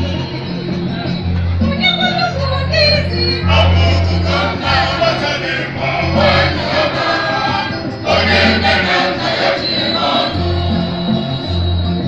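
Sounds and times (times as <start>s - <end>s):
low bass notes: 2.4s - 6.8s
church choir singing: 3.4s - 12.0s.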